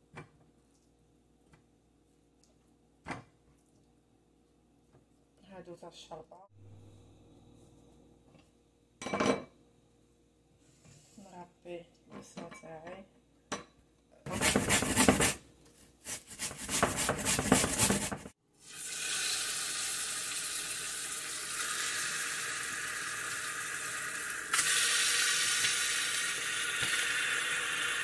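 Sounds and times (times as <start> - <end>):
kitchen utensils scraping and clattering: 16.3 - 18.3
meat sizzling in hot oil: 18.6 - 28.0.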